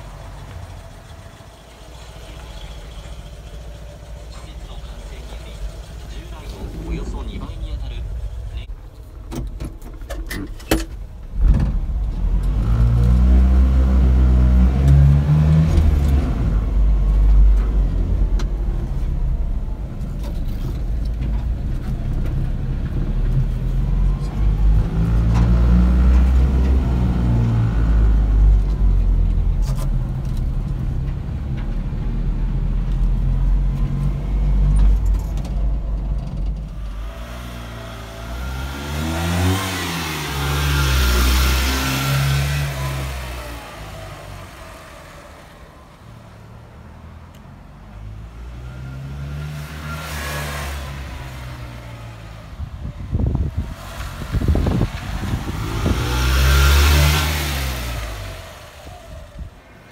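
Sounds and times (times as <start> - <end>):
small truck engine revving: 11.4 - 19.3, 22.2 - 31.3, 36.7 - 47.2, 48.0 - 59.9.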